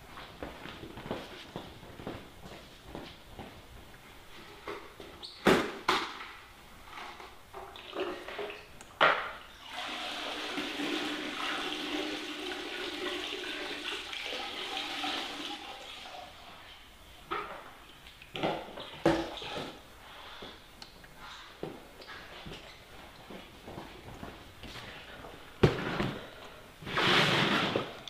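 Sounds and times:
water splashing into bucket: 9.6 - 16.3.

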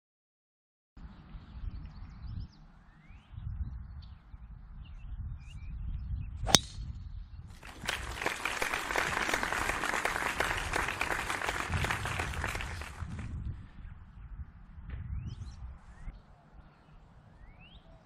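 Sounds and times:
golf driver striking ball: 6.5 - 6.8.

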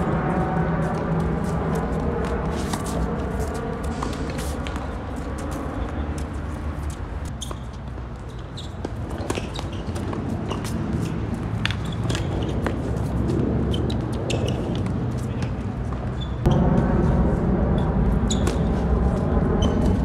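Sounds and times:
tennis ball hits and bounces: 8.8 - 13.2
low rumble: 16.4 - 20.0.

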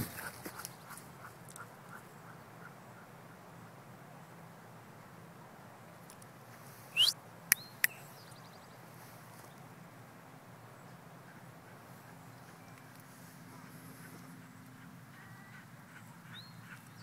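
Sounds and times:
loud rising chirp: 7.0 - 7.2.

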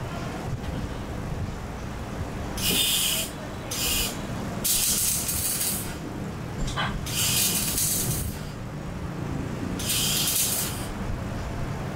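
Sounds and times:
welding arc hissing: 2.6 - 6.0, 7.0 - 8.6, 9.8 - 11.0
steady low rumble: 3.3 - 11.9.

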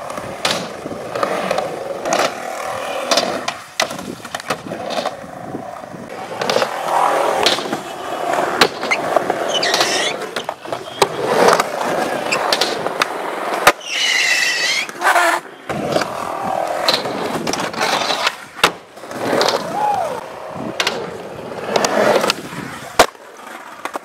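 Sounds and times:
skateboard clacks: 0.0 - 24.0
skateboard wheels rolling on concrete: 0.0 - 24.0
high screeches: 8.9 - 10.2, 13.8 - 15.4.

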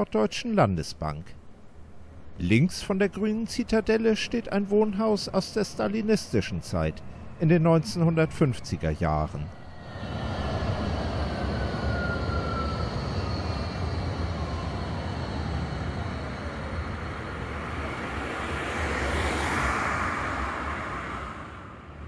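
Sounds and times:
tram rumbling: 1.4 - 22.0
car passing: 9.4 - 22.0
tram motor whine: 9.4 - 22.0.

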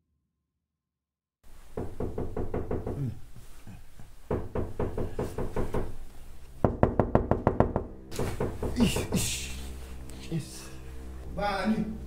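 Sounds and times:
rapid knocking on a door: 1.7 - 3.2, 4.3 - 6.0, 6.6 - 9.1.

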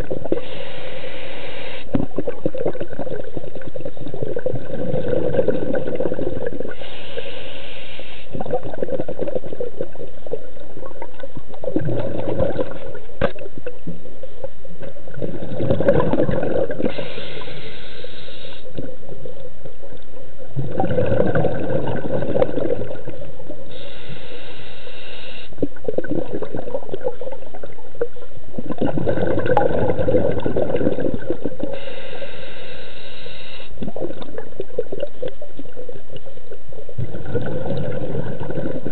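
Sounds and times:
regulator inhale hiss: 0.3 - 1.9, 6.7 - 8.4, 16.8 - 18.8, 23.7 - 25.7, 31.6 - 33.8
diver exhaling bubbles: 1.8 - 6.9, 8.3 - 13.5, 15.0 - 17.6, 20.5 - 23.3, 25.6 - 27.8, 28.6 - 32.3, 36.8 - 38.9.

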